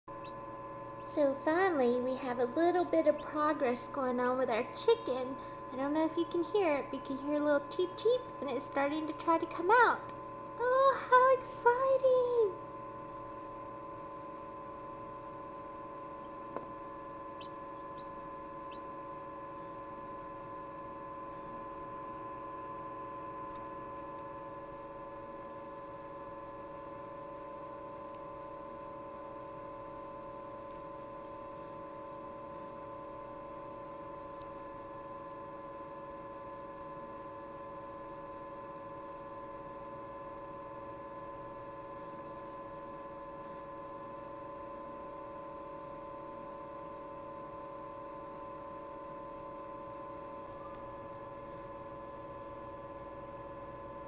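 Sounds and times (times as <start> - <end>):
egg incubator humming: 0.1 - 54.0
chick cheeping: 3.0 - 3.6, 17.4 - 18.1
click: 23.5 - 23.7, 34.3 - 34.6.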